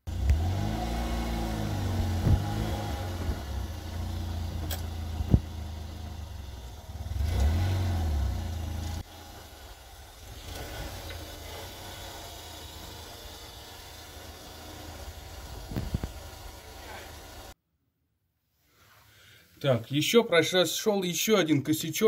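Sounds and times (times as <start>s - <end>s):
car engine revving: 0.1s - 17.6s.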